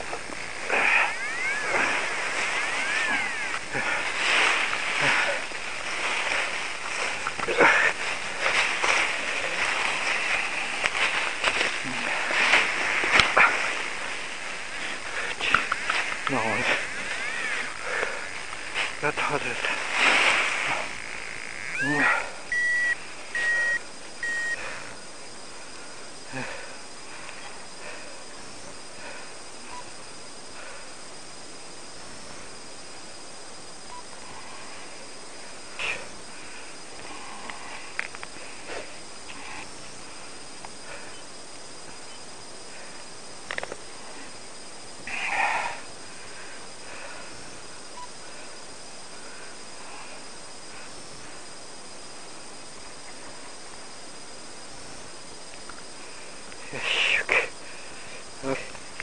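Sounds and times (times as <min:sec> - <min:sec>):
steady hiss: 0:00.0 - 0:59.0
electronic beeps: 0:00.8 - 0:03.6, 0:21.0 - 0:24.6
short rustle: 0:01.6 - 0:21.0.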